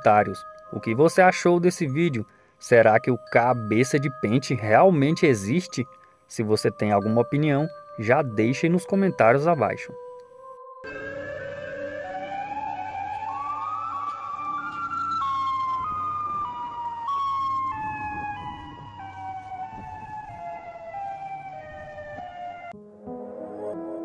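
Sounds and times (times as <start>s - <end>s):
siren-like creature wail: 10.8s - 22.7s.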